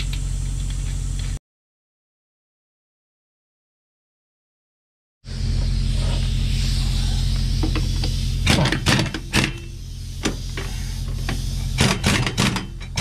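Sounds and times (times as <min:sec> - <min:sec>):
low mechanical hum: 0:00.0 - 0:01.4, 0:05.3 - 0:13.0
sharp knocks and clanks: 0:07.6 - 0:13.0.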